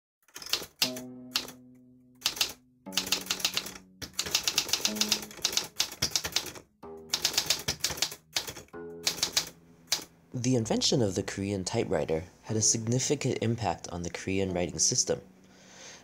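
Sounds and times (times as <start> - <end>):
typewriter keys clacking: 0.2 - 1.6, 2.2 - 10.1
background music with low notes: 0.7 - 16.0.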